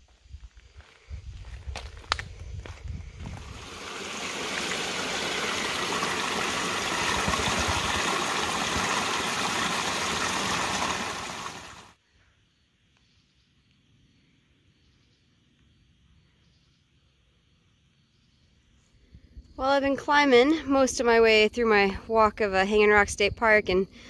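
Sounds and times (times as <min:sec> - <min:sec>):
footsteps: 0:00.8 - 0:03.8
running water: 0:03.4 - 0:12.0.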